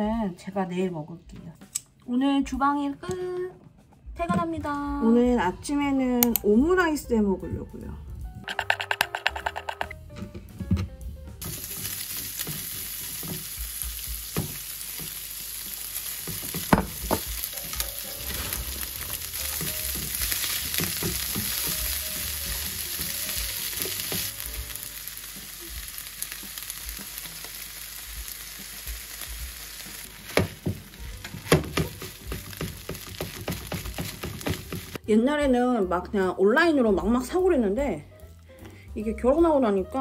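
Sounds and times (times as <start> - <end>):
utensil clacking against pan: 8.5 - 9.9, 30.5 - 35.0
food sizzling in a frying pan: 11.4 - 35.0.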